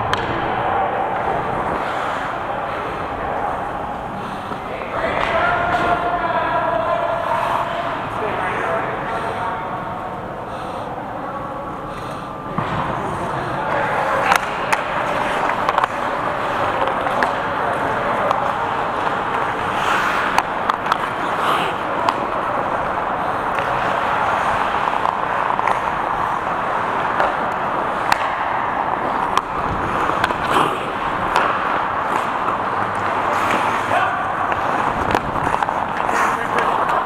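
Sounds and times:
hockey sticks and puck clacking: 0:00.0 - 0:09.4, 0:11.9 - 0:37.0
ice skate blades scraping: 0:01.3 - 0:02.4, 0:14.0 - 0:28.4, 0:29.0 - 0:37.0.

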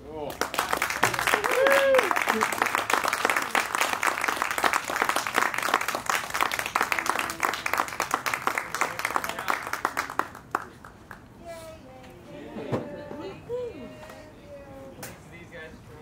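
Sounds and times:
audience applauding: 0:00.3 - 0:11.2.

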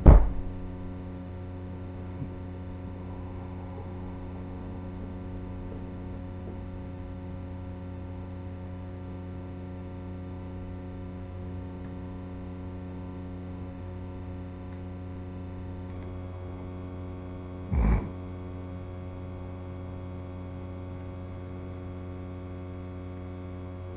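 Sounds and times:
loud thump: 0:00.0 - 0:00.7
electrical hum: 0:00.0 - 0:23.9.

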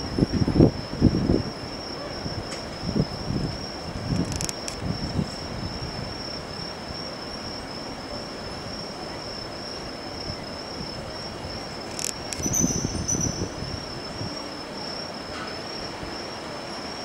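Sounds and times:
high-pitched insect trill: 0:00.0 - 0:17.0
low background noise: 0:00.0 - 0:17.0.

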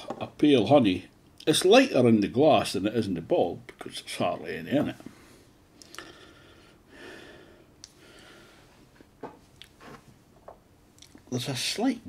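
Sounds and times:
faint breathing through nose: 0:05.0 - 0:08.9.

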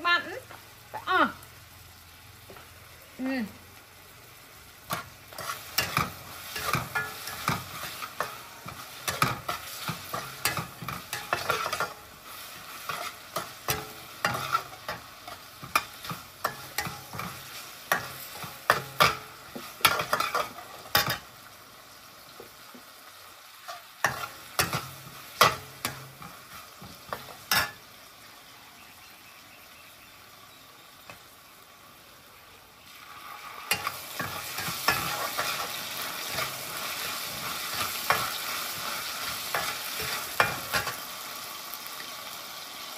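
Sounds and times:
sizzling: 0:00.0 - 0:42.9
metal spatula scraping wok: 0:04.9 - 0:21.3, 0:23.6 - 0:27.9, 0:33.2 - 0:41.1.

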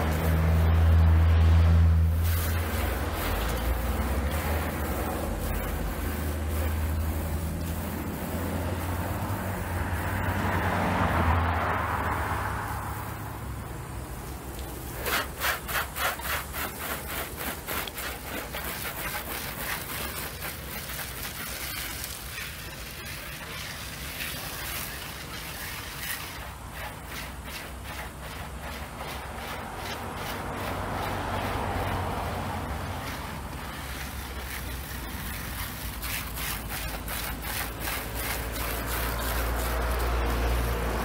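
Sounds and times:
hose spray hissing: 0:00.0 - 0:41.0.

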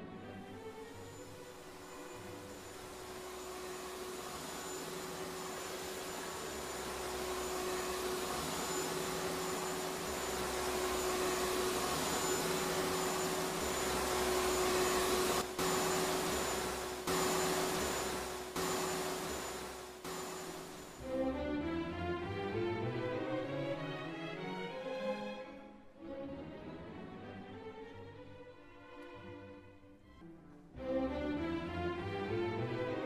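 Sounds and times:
vacuum cleaner running: 0:00.6 - 0:22.8.

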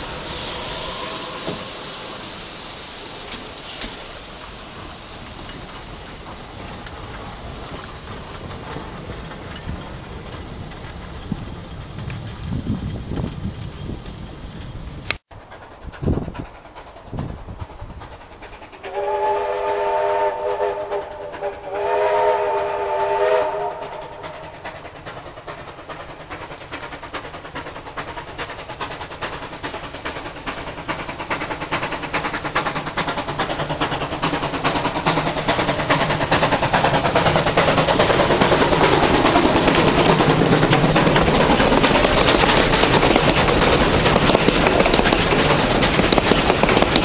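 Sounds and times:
train whistle blasts: 0:00.0 - 0:02.8, 0:18.9 - 0:24.2
train running noise: 0:00.0 - 0:47.0.

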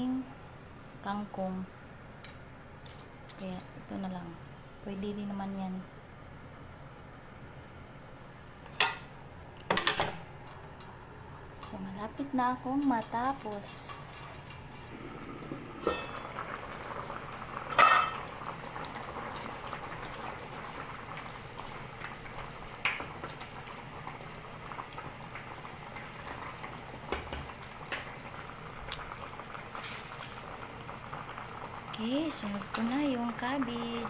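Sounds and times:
broth bubbling at a boil: 0:14.9 - 0:34.0
metal lid clanking: 0:15.8 - 0:16.3, 0:17.7 - 0:18.2.

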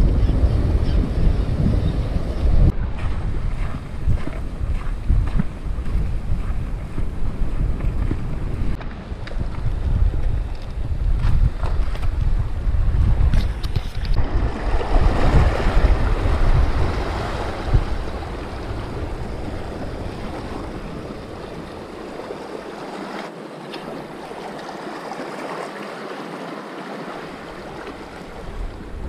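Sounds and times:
wind buffeting microphone: 0:00.0 - 0:24.7, 0:27.1 - 0:29.0
waves washing against rocky shore: 0:14.1 - 0:29.0.

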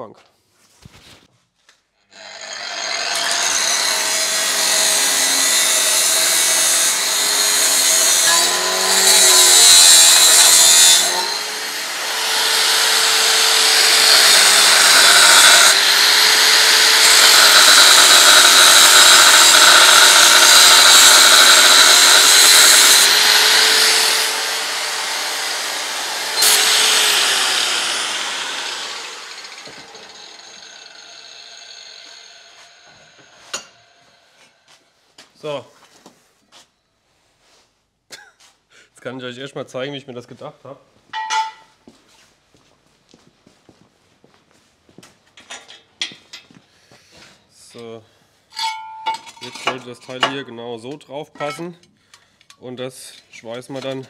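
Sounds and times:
power tool cutting steel: 0:02.1 - 0:34.6.

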